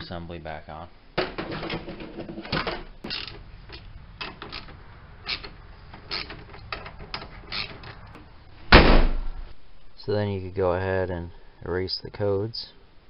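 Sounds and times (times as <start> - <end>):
socket ratchet clicking: 3.1 - 8.0.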